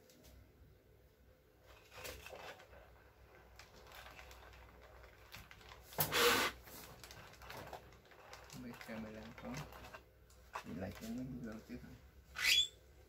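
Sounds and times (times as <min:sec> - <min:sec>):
soft rustling of plastic film: 0:01.6 - 0:12.0.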